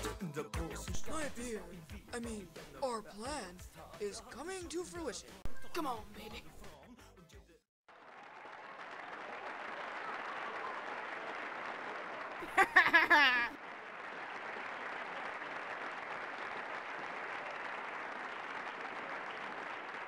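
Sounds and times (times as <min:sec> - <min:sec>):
crowd applauding and cheering: 0:07.9 - 0:20.0.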